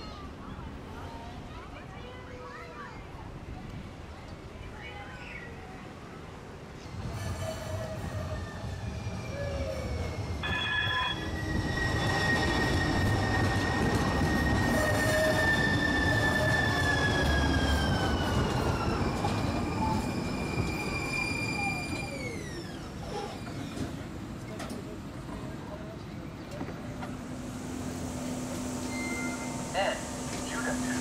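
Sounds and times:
streetcar rumble on rails: 0.0 - 31.0
streetcar wheels squealing: 6.8 - 24.2, 26.9 - 31.0.

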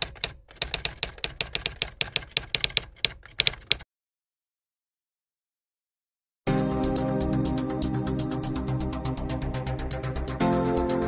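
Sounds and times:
typewriter key clacks: 0.0 - 3.8.

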